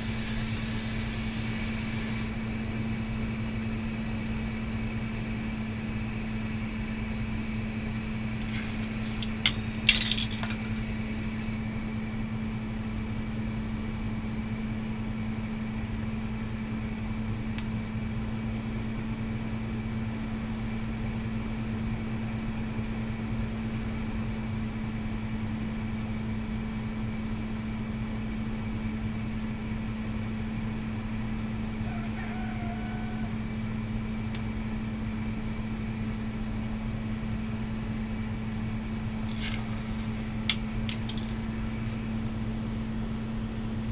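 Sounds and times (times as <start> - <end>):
glass rods clinking: 0.0 - 0.8, 8.4 - 10.9, 39.3 - 41.4
torch burning hum and hiss: 0.0 - 2.6.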